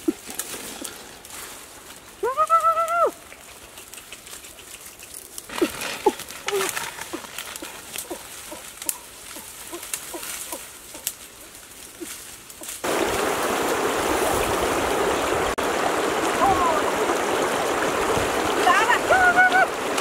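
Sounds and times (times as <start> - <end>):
stream rushing over stones: 0.0 - 11.1, 12.3 - 20.0
dry undergrowth rustling and snapping: 0.0 - 13.0.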